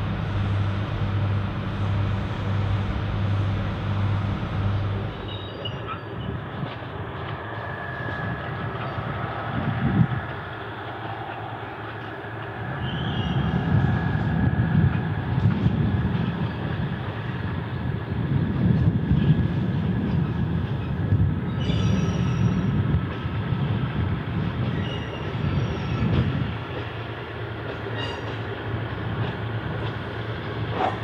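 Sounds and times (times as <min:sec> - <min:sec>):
diesel rail car rumble: 0:00.0 - 0:31.0
high wheel squeals: 0:05.1 - 0:06.4.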